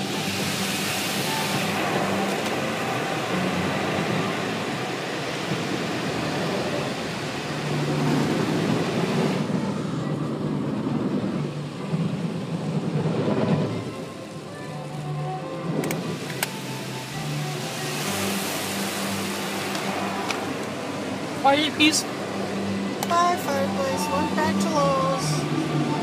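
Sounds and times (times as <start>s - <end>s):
water spraying onto car: 0.0s - 9.6s, 15.9s - 24.0s.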